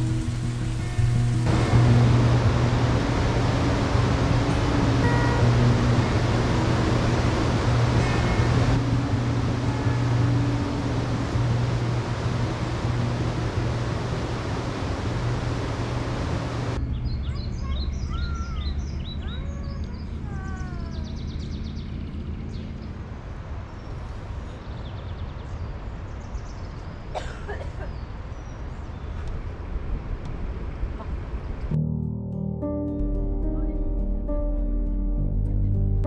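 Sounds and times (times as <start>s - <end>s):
river rapids rushing: 0.0s - 16.8s
steady low rumble: 0.0s - 24.8s
birds chirping: 0.7s - 29.4s.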